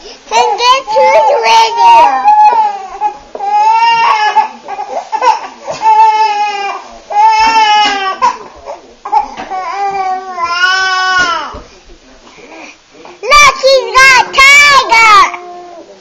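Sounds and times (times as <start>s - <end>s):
baby crying: 0.3s - 8.4s.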